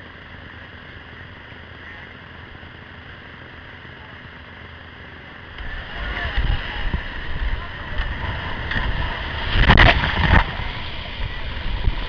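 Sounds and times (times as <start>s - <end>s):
whitewater creek rushing: 5.4s - 12.0s.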